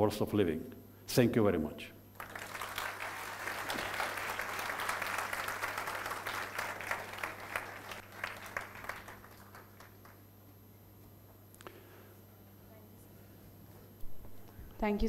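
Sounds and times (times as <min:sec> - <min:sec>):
audience applauding: 0:02.2 - 0:10.2.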